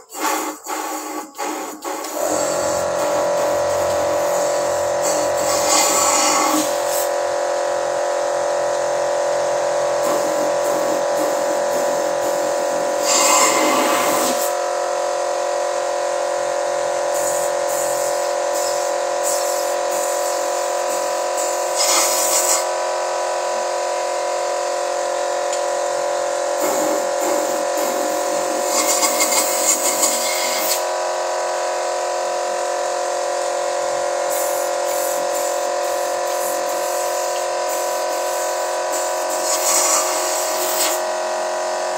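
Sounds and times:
car engine buzzing hum: 2.2 - 6.0.

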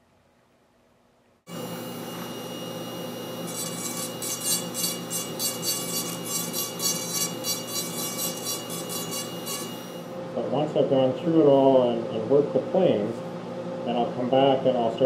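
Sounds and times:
rotary tool whining: 1.5 - 10.2.

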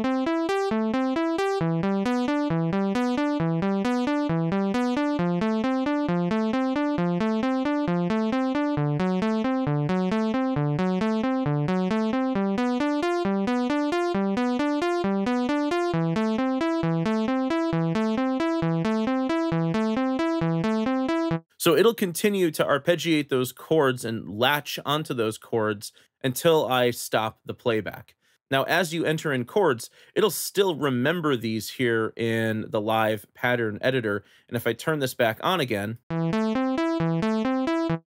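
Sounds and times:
synth arpeggio: 0.0 - 21.5, 36.1 - 38.0.

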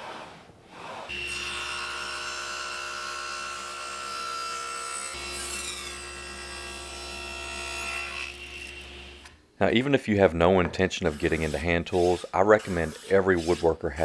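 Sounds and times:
table saw whining: 1.1 - 9.3.

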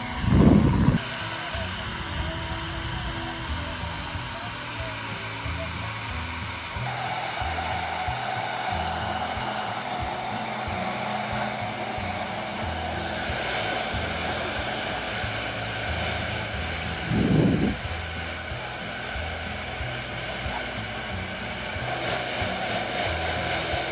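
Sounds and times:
hair dryer blowing: 0.0 - 23.9.

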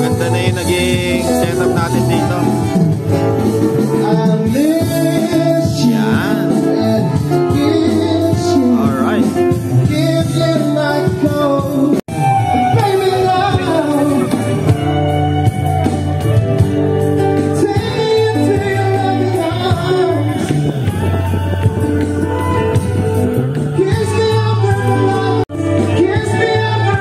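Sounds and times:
acoustic guitar: 0.0 - 27.0
percussion: 0.0 - 27.0
person singing: 3.6 - 16.4, 17.3 - 27.0.

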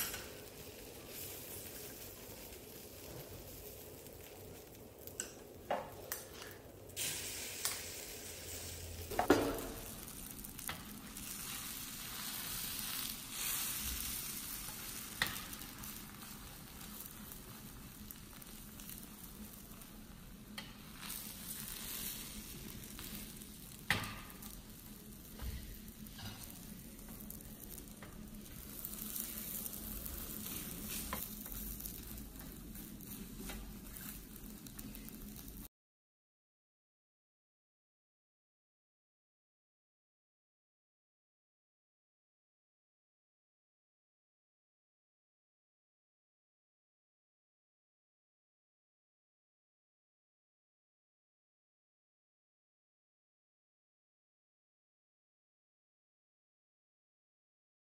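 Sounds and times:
egg sizzling in a pan: 0.0 - 35.7
spatula scraping a pan: 25.4 - 26.6, 28.6 - 32.0.

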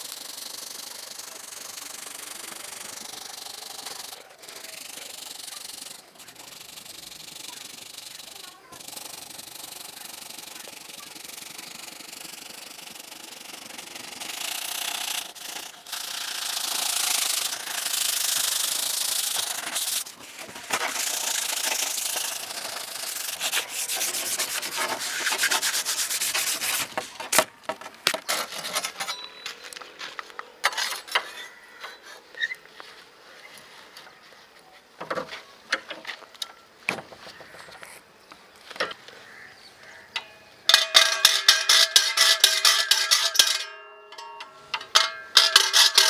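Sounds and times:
sandpaper scrubbing steel blade: 0.0 - 27.4, 40.7 - 43.7, 45.3 - 46.0
scattered clicks and knocks: 40.2 - 46.0.

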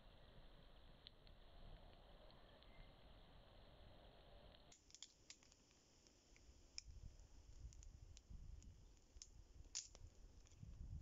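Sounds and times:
campfire crackling: 0.0 - 11.0
fire popping: 4.5 - 11.0.

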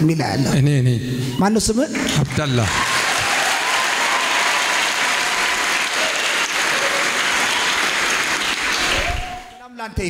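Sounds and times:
crowd applauding: 1.9 - 9.6.

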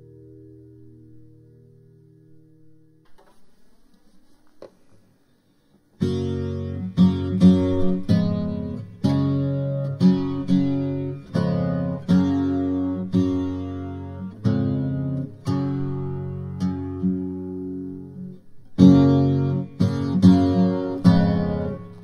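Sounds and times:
strummed guitar chords: 6.0 - 22.0.

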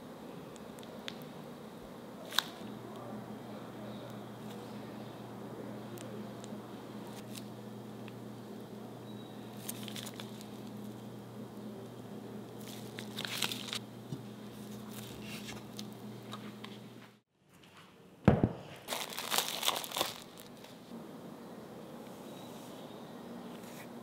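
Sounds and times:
steady low hum: 0.0 - 17.3, 20.1 - 24.0
plastic crinkles and clicks: 9.6 - 10.8, 12.6 - 13.8, 18.9 - 20.8.

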